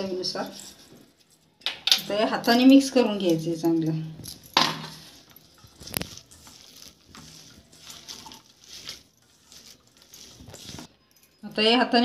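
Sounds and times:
hand squishing wet mixture: 4.4 - 11.0.

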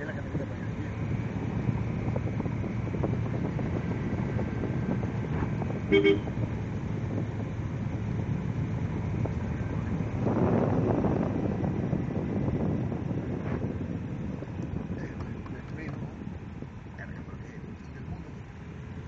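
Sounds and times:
car engine and tyre noise: 0.0 - 19.0
two-note car horn toots: 5.9 - 6.3.

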